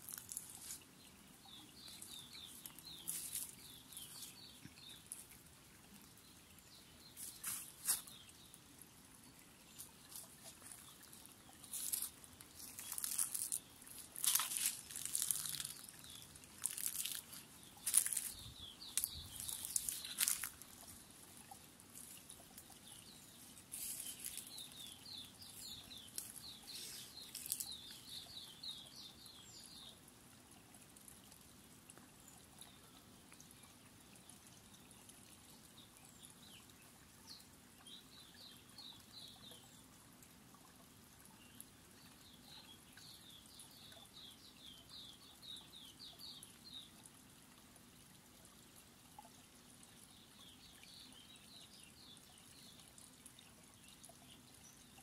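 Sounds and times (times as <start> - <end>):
faint trickling stream: 0.0 - 55.0
sharp crackles: 11.7 - 20.8.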